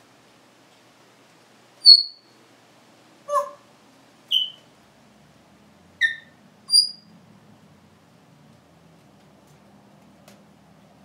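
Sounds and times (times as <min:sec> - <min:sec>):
parrot whistles and squeaks: 0:01.8 - 0:02.4, 0:03.3 - 0:03.6, 0:04.3 - 0:04.7, 0:06.0 - 0:07.1.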